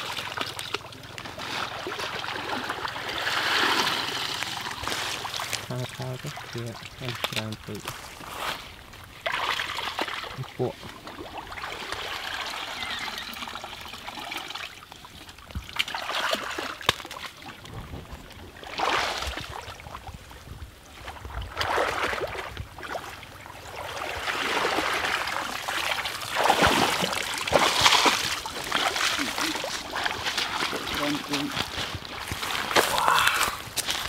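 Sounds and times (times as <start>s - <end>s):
water trickling: 0.0s - 21.4s, 22.3s - 34.0s
water splashing through basket: 9.2s - 17.7s, 24.1s - 32.8s.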